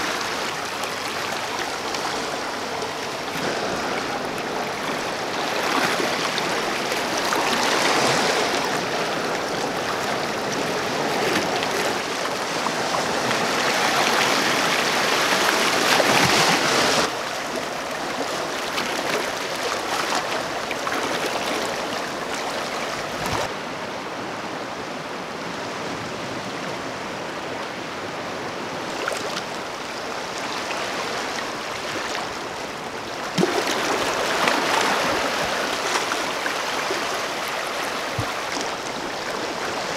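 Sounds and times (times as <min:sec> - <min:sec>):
water washing over rocks: 0:00.0 - 0:23.5, 0:28.9 - 0:39.9.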